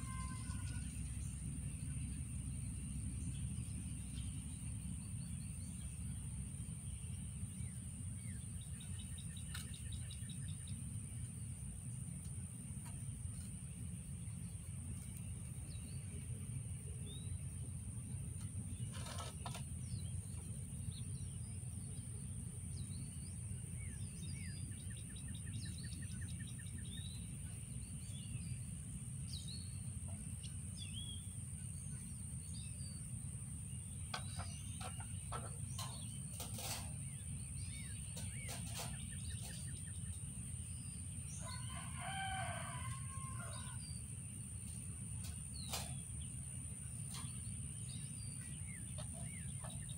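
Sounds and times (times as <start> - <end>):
rooster crowing: 0.0 - 1.0, 41.4 - 44.0
small birds chirping: 0.0 - 49.9.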